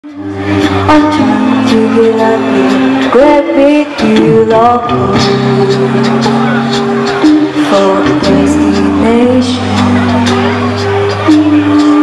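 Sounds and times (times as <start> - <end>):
vocal group singing in harmony: 0.1 - 12.0
low bass line: 4.0 - 7.0.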